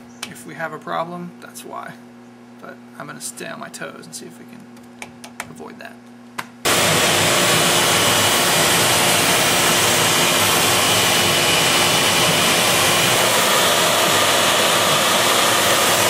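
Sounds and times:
router spindle cutting foam: 0:06.7 - 0:16.0.

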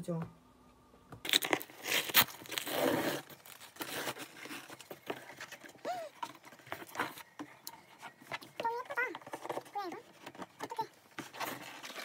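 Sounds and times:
packing tape tearing: 0:01.2 - 0:05.6, 0:11.2 - 0:12.0
cardboard and bubble wrap rustling: 0:01.2 - 0:12.0.

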